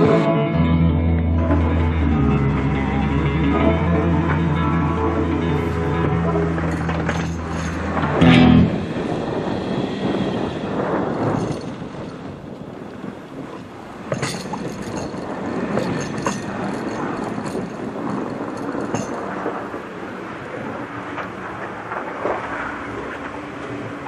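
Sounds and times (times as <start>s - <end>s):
plow blade scraping snow: 3.5s - 11.9s
sharp knocks and rattles: 6.6s - 8.8s, 14.0s - 19.8s.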